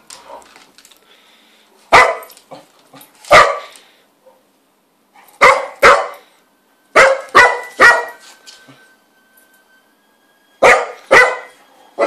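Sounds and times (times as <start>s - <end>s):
dog barking: 1.9s - 2.3s, 3.3s - 4.4s, 5.4s - 6.3s, 7.0s - 8.2s, 10.6s - 11.6s.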